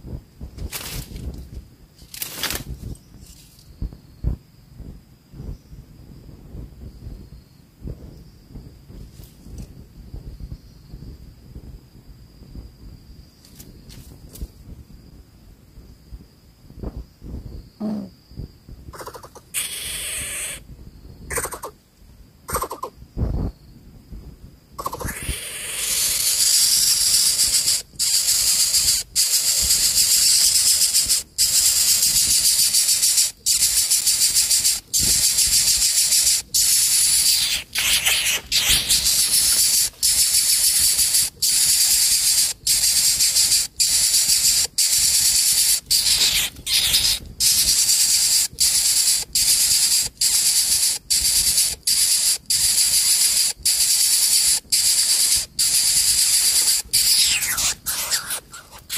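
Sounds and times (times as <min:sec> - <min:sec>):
bird nestling hissing: 0:19.0 - 0:20.6, 0:24.8 - 0:58.9.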